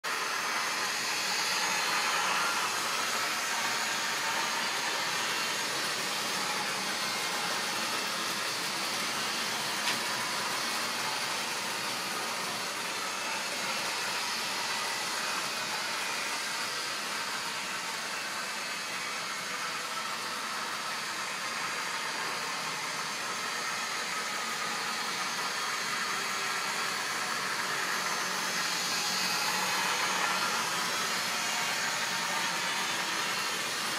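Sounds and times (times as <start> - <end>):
small electric motor whirring: 0.1 - 33.9
model train wheels on rails: 0.2 - 15.9.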